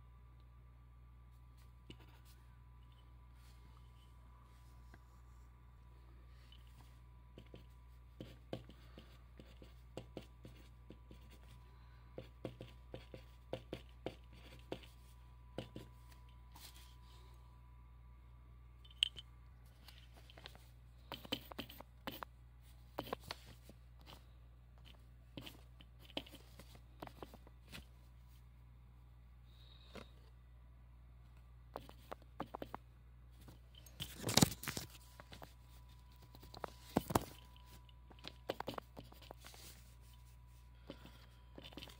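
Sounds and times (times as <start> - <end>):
pen scratching on paper: 7.4 - 11.6, 12.2 - 15.0, 21.1 - 22.3, 25.4 - 27.3, 38.4 - 39.7.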